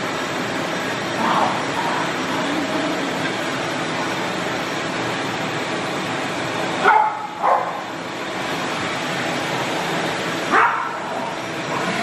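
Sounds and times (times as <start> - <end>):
vacuum cleaner motor drone: 0.0 - 12.0
dog barking: 6.8 - 7.8, 10.5 - 11.9.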